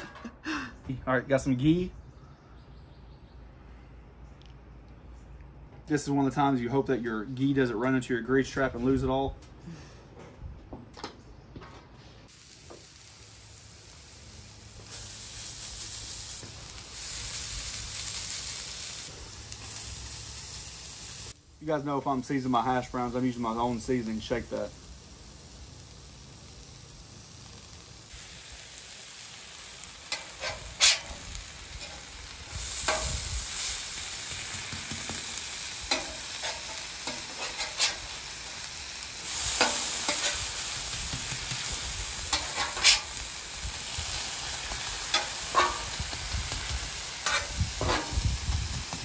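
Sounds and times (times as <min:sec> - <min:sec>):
hash browns sizzling on griddle: 0:12.3 - 0:49.0
metal spatula scraping and clacking: 0:30.1 - 0:31.2, 0:35.9 - 0:38.1, 0:42.3 - 0:43.1, 0:45.1 - 0:46.0, 0:47.2 - 0:48.2.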